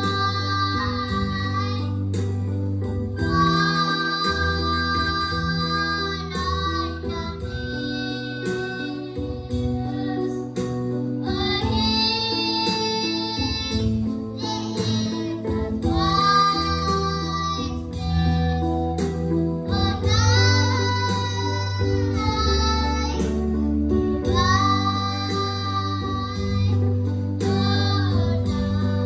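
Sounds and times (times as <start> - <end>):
high child-like singing voice: 3.2 - 10.6, 11.2 - 19.0, 24.3 - 26.8, 27.4 - 29.0
steady bass line: 13.6 - 29.0.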